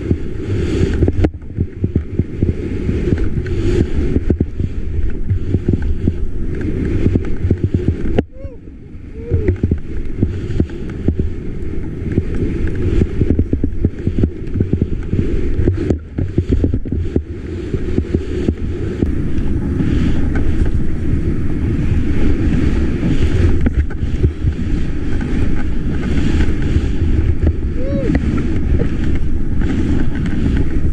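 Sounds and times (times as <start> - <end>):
skis hissing over snow: 0.0 - 30.9
wind buffeting microphone: 0.0 - 30.9.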